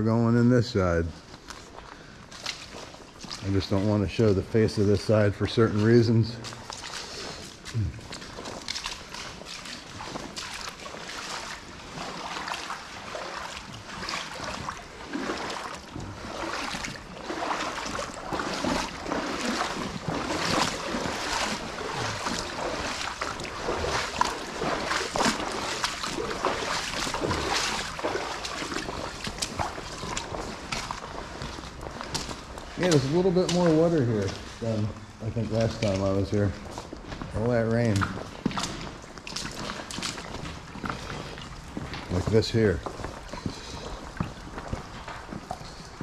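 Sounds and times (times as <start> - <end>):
footsteps wading through water: 0.0 - 46.0.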